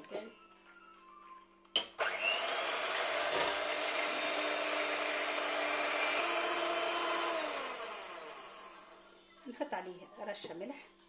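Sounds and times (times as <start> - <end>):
electric hand mixer whisking: 2.0 - 9.1.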